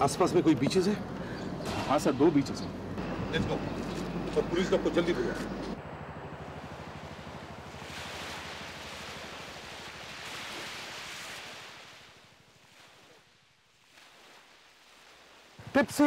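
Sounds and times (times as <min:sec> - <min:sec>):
low fast throbbing: 0:00.0 - 0:08.7
sea surf and wind hiss: 0:06.5 - 0:16.0.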